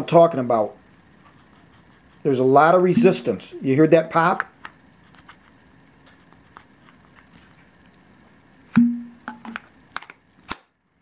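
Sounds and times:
sharp metal pop with ringing: 0:08.8 - 0:09.3.

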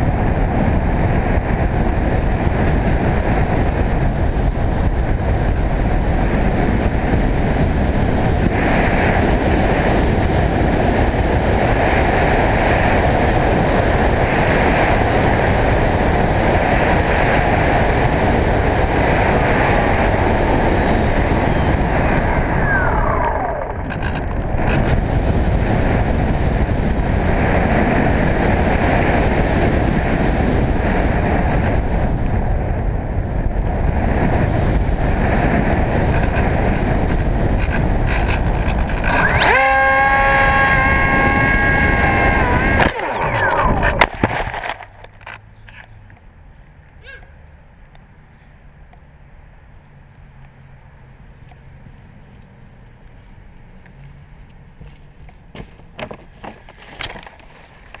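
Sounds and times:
electric motor and propeller: 0:00.0 - 0:32.2, 0:34.2 - 0:46.2
wind rushing over camera: 0:00.0 - 0:58.0.

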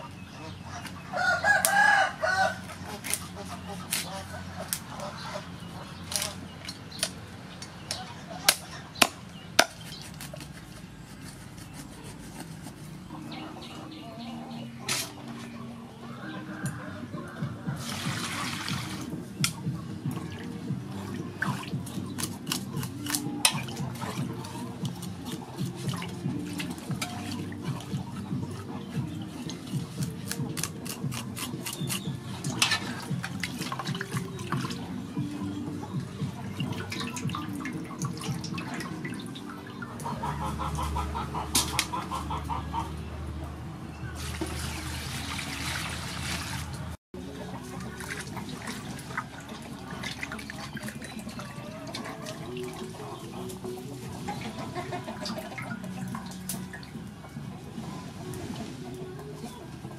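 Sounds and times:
cleaver chopping fish on wood: 0:08.5 - 0:12.8, 0:21.7 - 0:24.0, 0:29.8 - 0:34.7
water splashing in metal basin: 0:16.5 - 0:42.8, 0:44.1 - 0:59.9.

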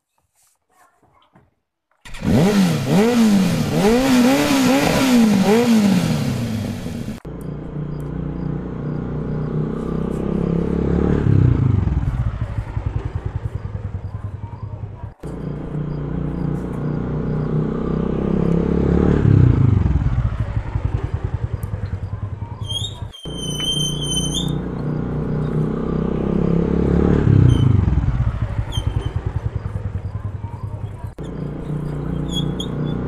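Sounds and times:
motorcycle engine revving and idling: 0:02.0 - 0:33.0.

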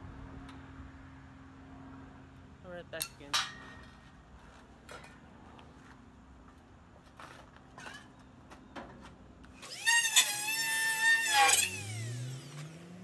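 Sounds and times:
rotary tool whining: 0:09.5 - 0:13.0.

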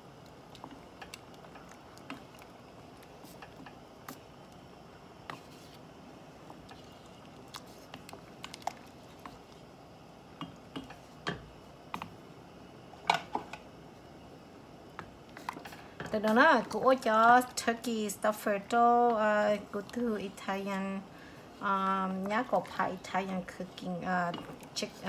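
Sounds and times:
wooden spoon stirring rice: 0:00.3 - 0:12.2, 0:15.0 - 0:25.0.

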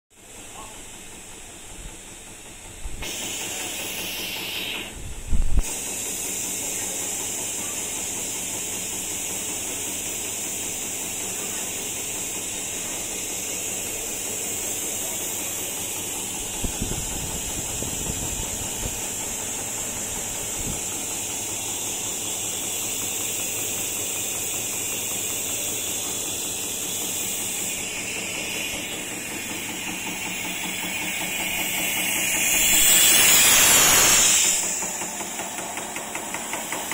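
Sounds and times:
machine hiss: 0:00.2 - 0:36.9
low machine hum: 0:10.2 - 0:36.2.

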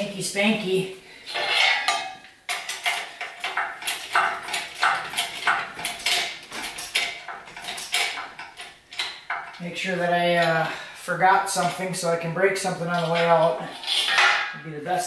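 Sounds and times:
hoist chain clinking: 0:01.3 - 0:09.6.

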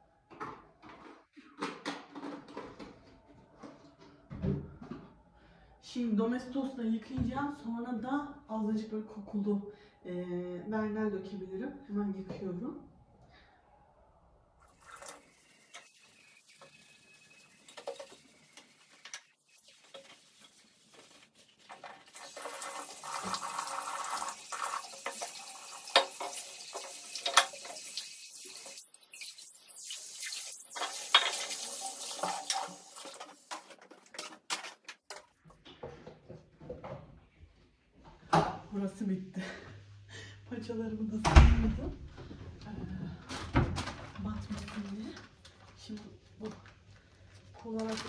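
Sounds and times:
tap water running: 0:14.6 - 0:34.4.

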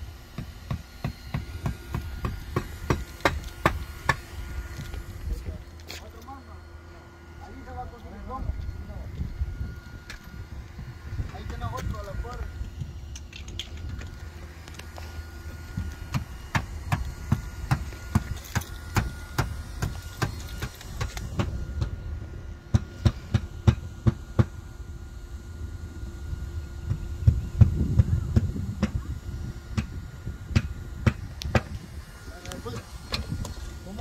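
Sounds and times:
steady low rumble: 0:00.0 - 0:34.0
footsteps on shingle roof: 0:00.3 - 0:06.1.

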